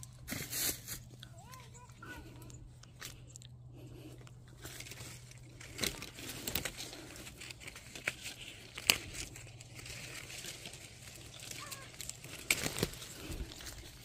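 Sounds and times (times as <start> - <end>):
leaves and twigs rustling: 0.0 - 14.0
twigs snapping: 4.2 - 14.0.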